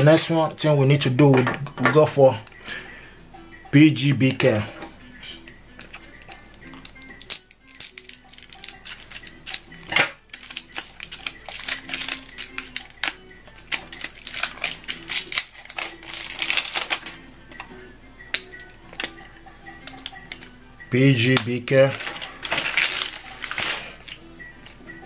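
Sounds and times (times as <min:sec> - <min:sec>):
soft background music: 0:00.0 - 0:25.0
plastic wrapper crackling: 0:05.8 - 0:17.2, 0:21.8 - 0:24.2.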